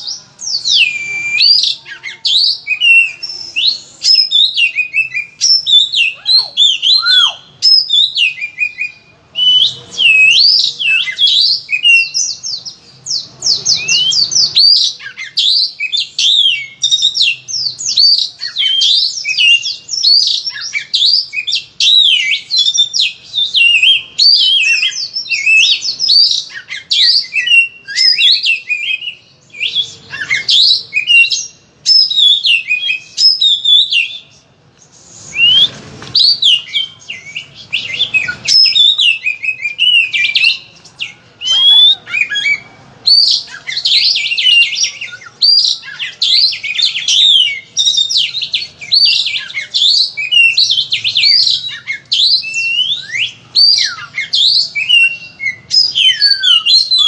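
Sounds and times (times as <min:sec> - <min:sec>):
bird singing: 0:00.0 - 0:34.6, 0:35.3 - 0:57.0.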